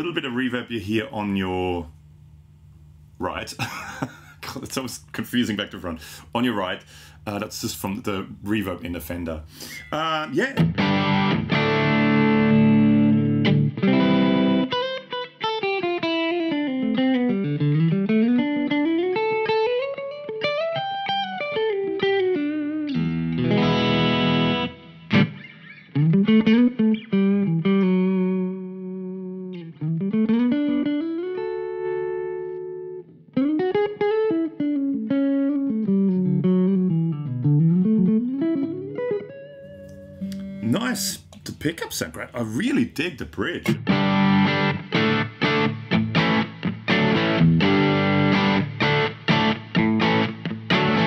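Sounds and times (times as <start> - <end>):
electric guitar playing: 10.6 - 51.0.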